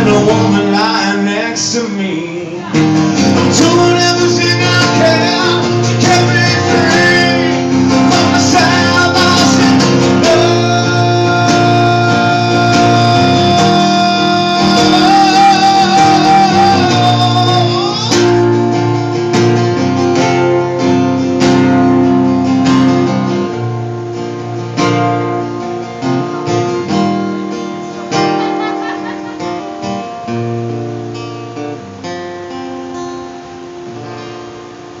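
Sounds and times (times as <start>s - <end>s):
acoustic guitar strumming: 0.0s - 35.0s.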